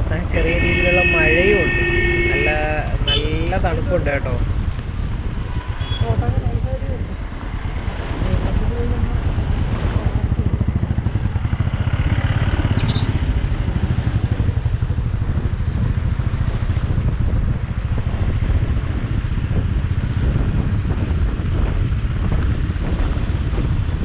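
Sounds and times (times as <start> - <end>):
wind noise on microphone: 0.0 - 24.0
motorcycle engine running: 4.4 - 24.0.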